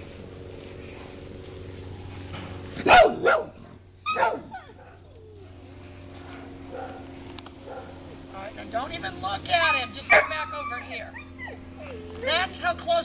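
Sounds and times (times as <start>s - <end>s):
dog barking: 2.8s - 5.1s, 6.7s - 7.0s, 7.6s - 8.0s, 10.0s - 10.7s.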